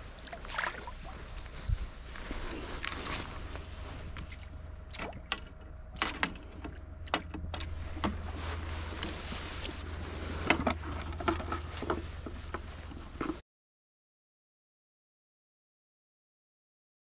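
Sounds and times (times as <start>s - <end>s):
steady low hum: 0.0s - 13.4s
fish splashing at water surface: 0.2s - 1.2s
handling knocks and clicks: 4.1s - 13.4s.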